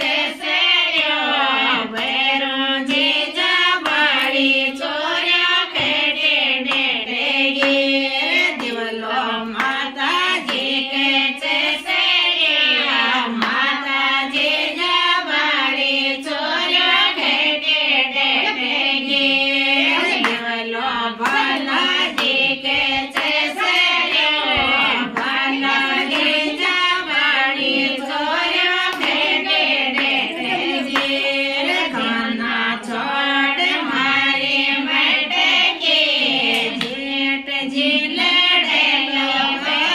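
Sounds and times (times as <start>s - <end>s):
women singing together: 0.0s - 39.9s
sharp hand claps: 3.8s - 4.4s, 7.6s - 10.8s, 20.1s - 20.5s, 21.2s - 26.7s.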